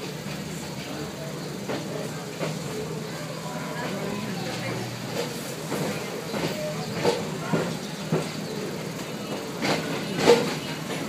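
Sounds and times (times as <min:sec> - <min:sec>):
train coach rumble: 0:00.0 - 0:11.0
wheels clacking over rail joints: 0:00.0 - 0:11.0.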